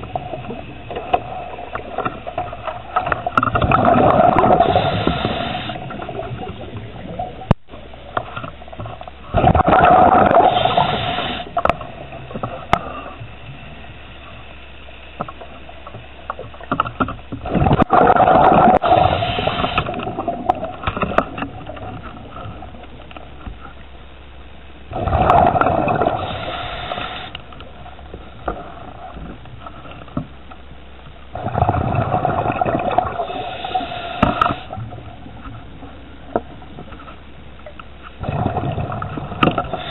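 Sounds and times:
exhaled bubbles rushing underwater: 0:00.0 - 0:14.5, 0:15.2 - 0:23.1, 0:24.8 - 0:29.5, 0:31.3 - 0:39.9
regulator hiss: 0:04.1 - 0:08.6, 0:09.8 - 0:16.6, 0:18.7 - 0:21.0, 0:24.4 - 0:29.2, 0:32.9 - 0:36.2, 0:39.6 - 0:39.9.

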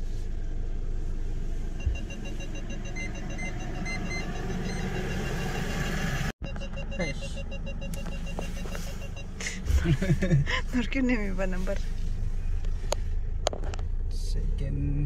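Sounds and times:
car engine idling: 0:00.0 - 0:15.0
short electronic beeps: 0:01.8 - 0:09.7.

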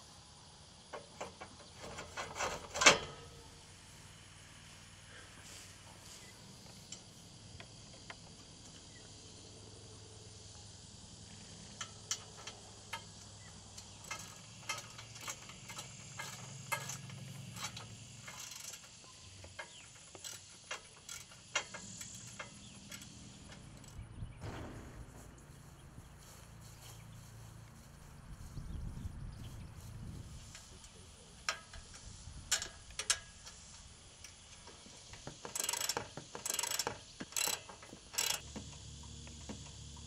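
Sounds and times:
ratchet wrench clicking: 0:11.6 - 0:24.0, 0:30.5 - 0:38.5
small metal clinks: 0:11.6 - 0:24.0, 0:30.5 - 0:38.4.

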